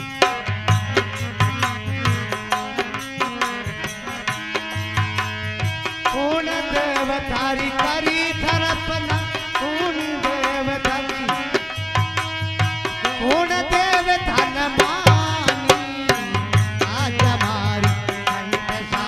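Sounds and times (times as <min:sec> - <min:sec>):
harmonium steady notes: 0:00.0 - 0:19.0
person singing: 0:06.0 - 0:11.7, 0:12.8 - 0:19.0.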